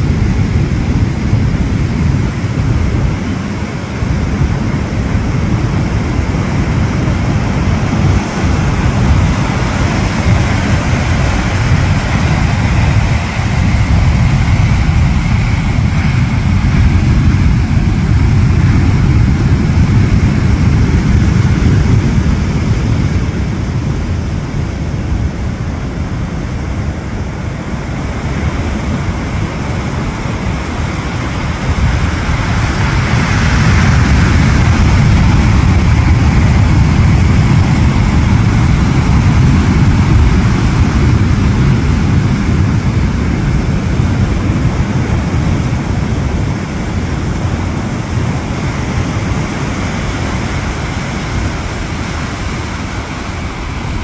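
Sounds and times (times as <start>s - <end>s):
surf breaking on rocky shore: 0.0s - 54.0s.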